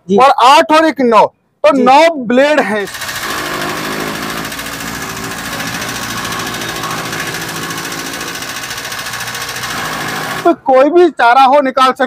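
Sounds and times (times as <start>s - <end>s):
chaff cutter chopping fodder: 2.8s - 10.6s.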